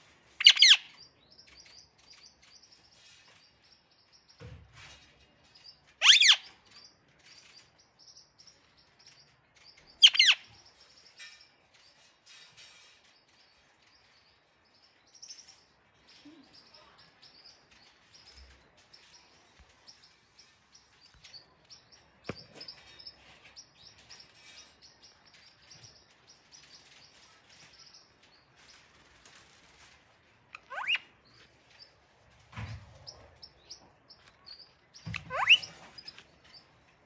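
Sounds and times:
parakeet chirping: 0:00.4 - 0:02.2, 0:06.0 - 0:07.6, 0:09.7 - 0:10.6, 0:30.5 - 0:31.8, 0:33.1 - 0:36.7.

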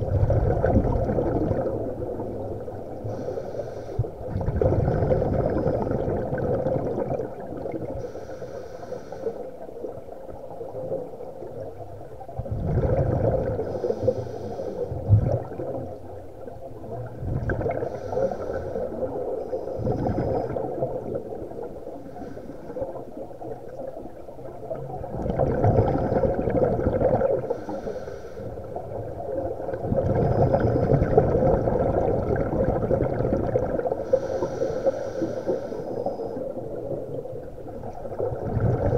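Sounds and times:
scuba regulator breathing underwater: 0:03.0 - 0:06.4, 0:07.8 - 0:09.7, 0:12.8 - 0:15.4, 0:17.6 - 0:23.2, 0:25.7 - 0:28.8, 0:29.8 - 0:36.9.

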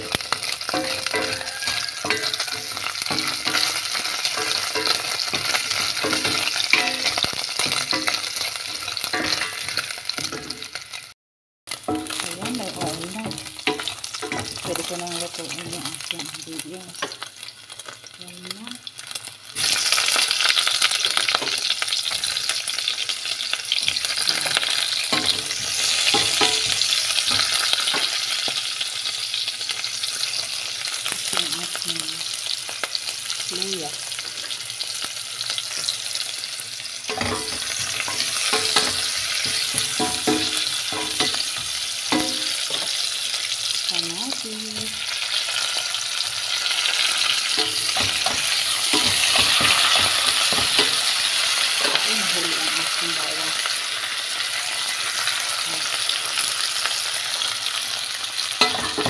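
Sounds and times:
meat and onion sizzling in fat: 0:00.0 - 0:59.0
stirring knocks against a pot: 0:37.1 - 0:42.9.

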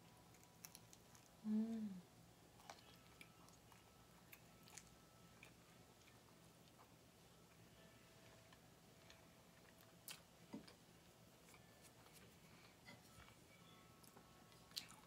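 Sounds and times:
person chewing bread: 0:00.2 - 0:01.4, 0:02.6 - 0:07.6, 0:08.5 - 0:10.8, 0:14.0 - 0:15.0
person humming with enjoyment: 0:01.4 - 0:02.1.

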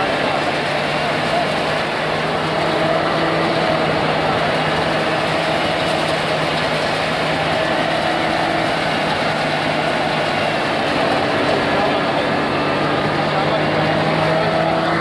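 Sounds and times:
thresher machine droning: 0:00.0 - 0:15.0.

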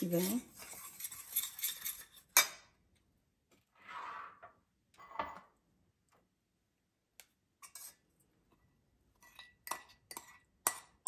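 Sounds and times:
spoon tapping bowl and saucepan: 0:09.4 - 0:11.0.

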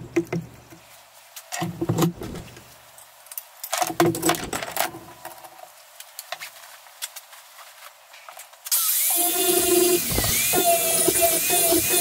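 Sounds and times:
angle grinder cutting steel: 0:08.7 - 0:12.0.

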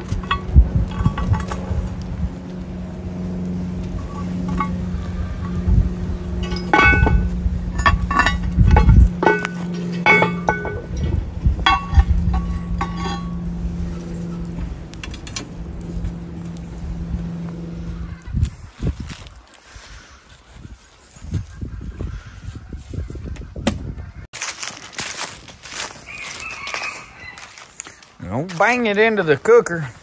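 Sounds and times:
low hum: 0:00.0 - 0:19.4
cast iron lid clanking on pot: 0:03.9 - 0:15.8.

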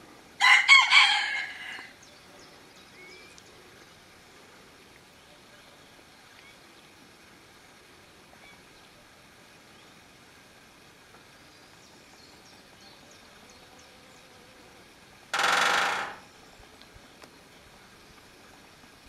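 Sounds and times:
woodpecker drumming on metal: 0:15.3 - 0:16.3.

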